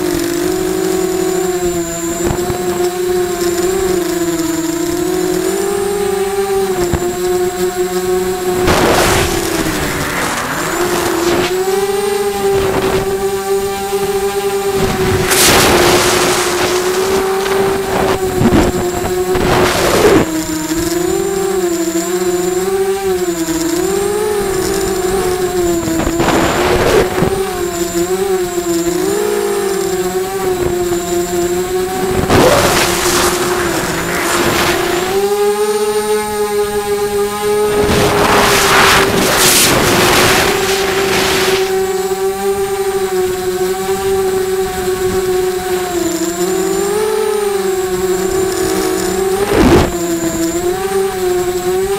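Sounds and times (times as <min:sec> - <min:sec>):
drone motors whining: 0:00.0 - 0:51.9
loud hiss: 0:32.1 - 0:35.2, 0:37.6 - 0:41.7.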